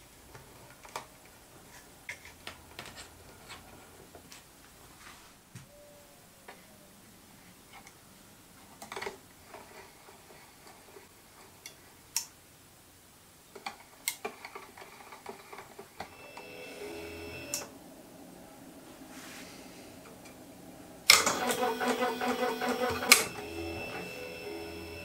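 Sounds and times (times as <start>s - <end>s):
stepper motor whining: 16.1s - 17.8s, 20.1s - 25.0s.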